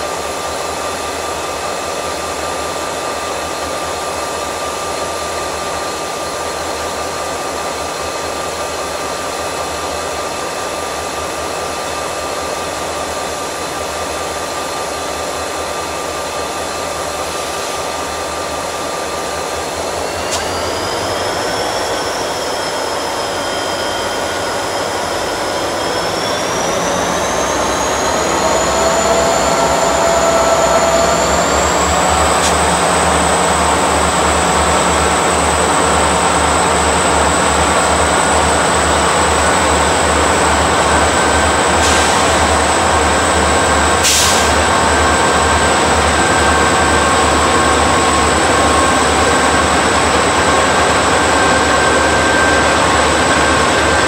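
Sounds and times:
locomotive engines whining: 0:16.3 - 0:54.0
higher rising whine: 0:19.6 - 0:54.0.

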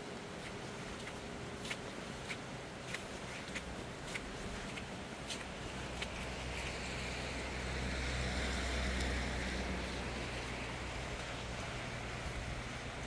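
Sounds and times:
wind through trees: 0:00.0 - 0:13.0
wind rumbling on microphone: 0:03.6 - 0:13.0.

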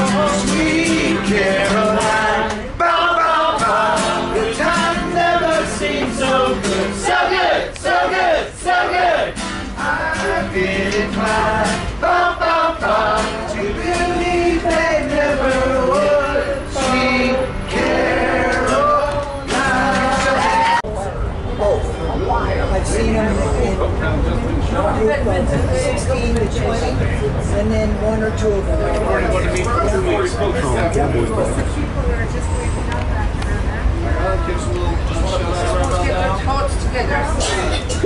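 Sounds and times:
people singing together: 0:00.0 - 0:20.9
acoustic guitar: 0:00.0 - 0:21.2.

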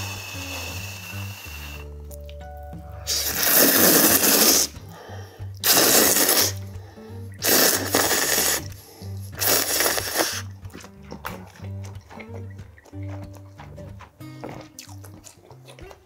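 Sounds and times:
soft background music: 0:00.0 - 0:16.0
person slurping noodles: 0:03.1 - 0:13.0.

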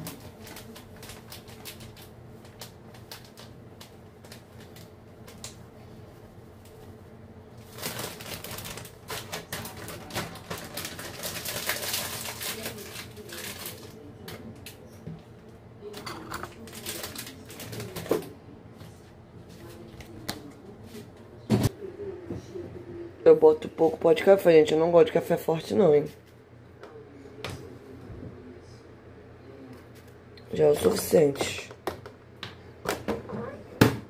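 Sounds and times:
kitchen items clicking and knocking: 0:15.9 - 0:18.3.

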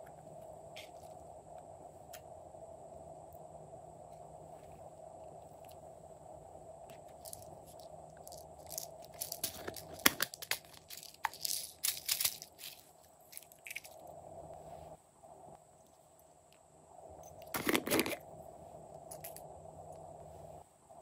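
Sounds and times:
plastic container crackling: 0:07.1 - 0:13.9.

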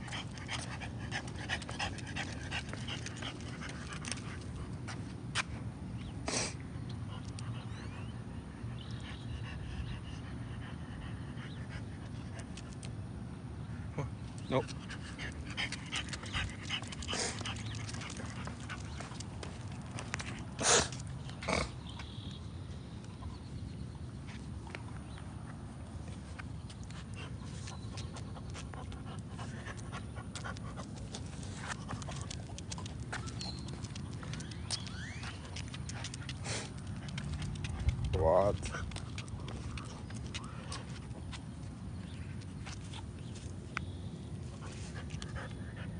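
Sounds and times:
dog panting and snuffling: 0:00.0 - 0:05.6, 0:14.6 - 0:21.9, 0:26.1 - 0:43.6, 0:44.4 - 0:45.9.

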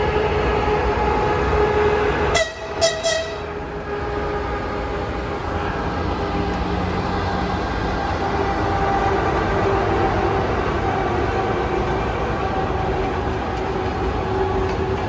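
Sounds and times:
electric train rumble and hum: 0:00.0 - 0:15.0
train horn toots: 0:02.3 - 0:03.6.

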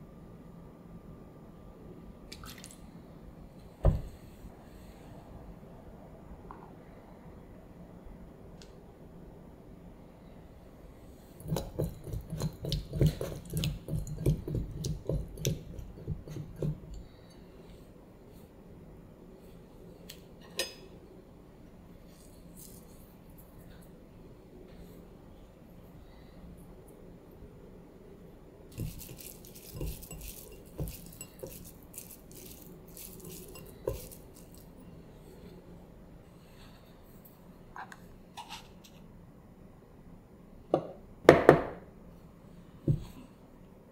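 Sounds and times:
hand mixing raw meat in bowl: 0:11.4 - 0:16.9, 0:28.7 - 0:34.9.

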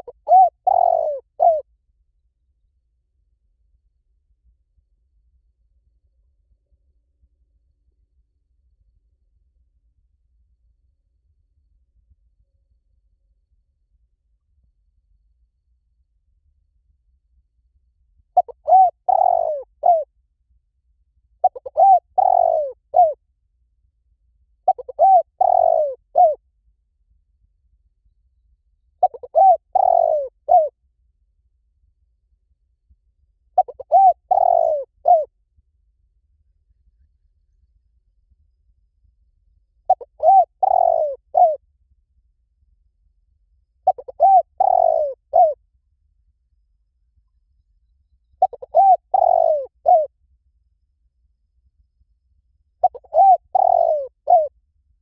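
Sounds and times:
dove cooing: 0:00.0 - 0:01.7, 0:18.4 - 0:20.1, 0:21.4 - 0:23.2, 0:24.7 - 0:26.4, 0:29.0 - 0:30.7, 0:33.6 - 0:35.3, 0:39.9 - 0:41.6, 0:43.8 - 0:45.6, 0:48.4 - 0:50.1, 0:52.8 - 0:54.5.

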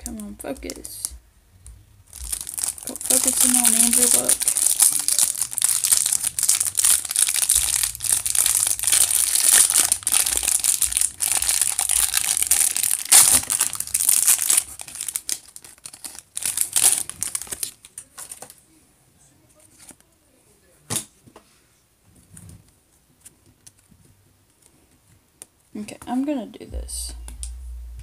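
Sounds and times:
plastic wrapper crinkling: 0:02.1 - 0:18.6.

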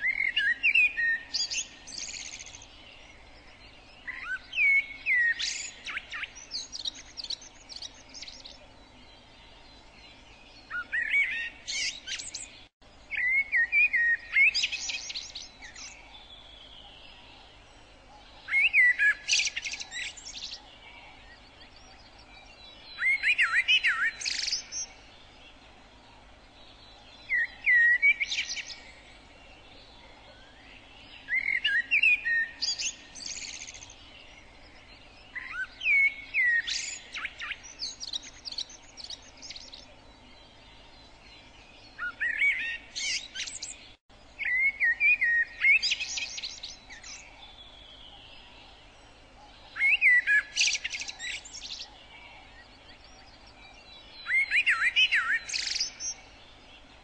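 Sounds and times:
songbird singing: 0:00.0 - 0:57.0.

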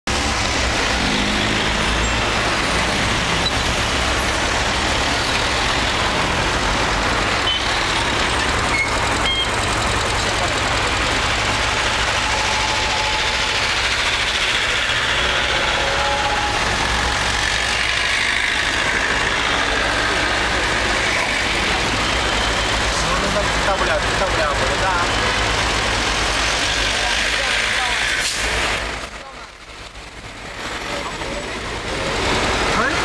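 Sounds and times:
cars passing on road: 0:00.0 - 0:33.0
short high beeps: 0:08.7 - 0:09.6.

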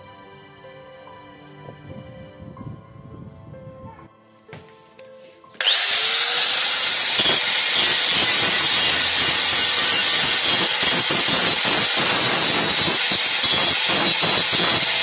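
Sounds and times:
angle grinder grinding steel: 0:05.6 - 0:15.0.

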